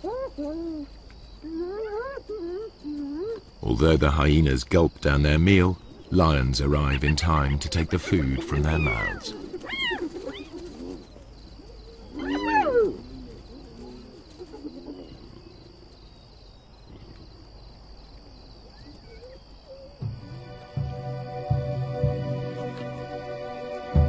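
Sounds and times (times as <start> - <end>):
hyenas calling: 5.9 - 15.7.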